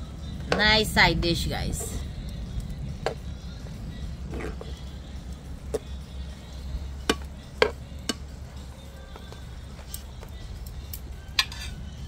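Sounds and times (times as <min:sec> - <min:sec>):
low rumble: 0:00.0 - 0:08.6
spatula scraping frying pan: 0:11.4 - 0:11.8.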